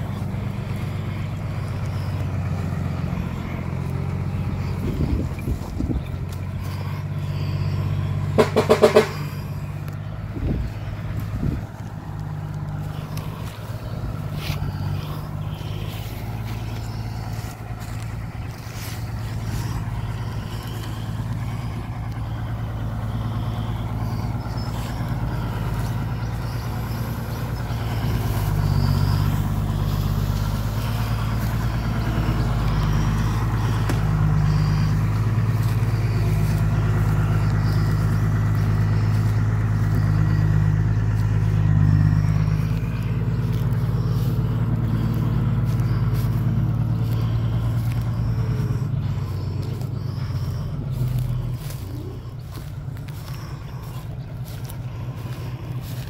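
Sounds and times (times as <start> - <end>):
truck diesel engine: 0.0 - 56.0
turbo whistle: 6.6 - 9.8, 18.0 - 55.9.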